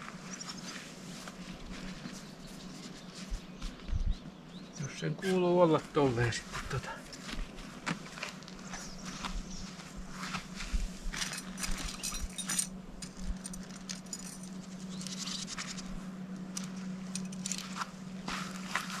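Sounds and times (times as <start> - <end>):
tent fabric rustling: 0.0 - 3.8, 6.3 - 12.5, 16.7 - 19.0
low steady hum: 0.0 - 19.0
tent poles clinking: 11.1 - 19.0.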